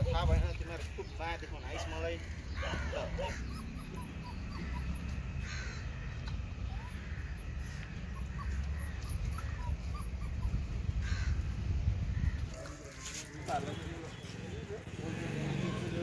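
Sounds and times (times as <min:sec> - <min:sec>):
crows cawing: 0:02.2 - 0:03.6, 0:05.4 - 0:06.2, 0:11.0 - 0:12.8.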